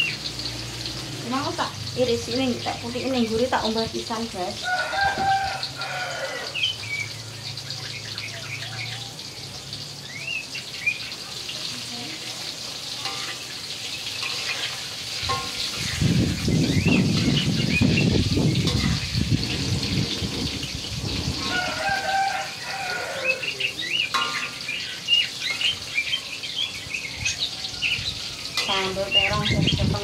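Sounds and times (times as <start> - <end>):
eggplant sizzling in a wok: 0.0 - 30.0
small birds chirping: 5.6 - 20.7, 22.3 - 30.0
metal spatula in a pan: 6.8 - 26.8, 27.4 - 30.0.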